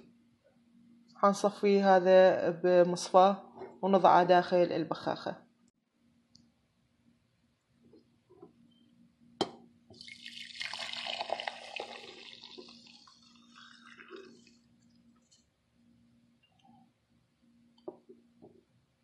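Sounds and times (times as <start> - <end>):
liquid pouring into metal pot: 10.0 - 14.6.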